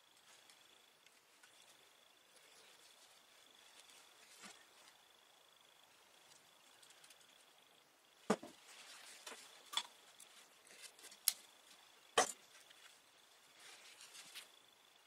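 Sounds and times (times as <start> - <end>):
objects knocking on wooden bench: 8.3 - 8.6.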